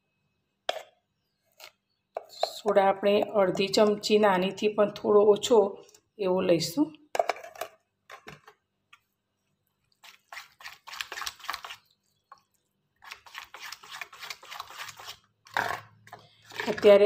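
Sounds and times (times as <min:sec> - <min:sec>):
spoon stirring thick batter: 0:00.7 - 0:04.2, 0:08.3 - 0:17.0.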